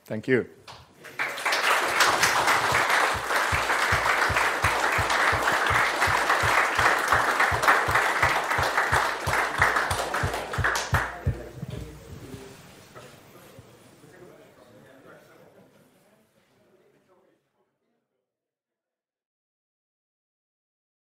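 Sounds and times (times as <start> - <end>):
close steady hand claps: 0.7 - 11.6
audience applause: 1.0 - 12.0.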